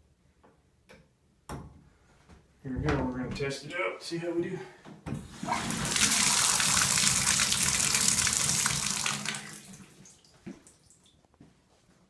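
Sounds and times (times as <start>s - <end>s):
water pouring into bathtub: 5.3s - 11.1s.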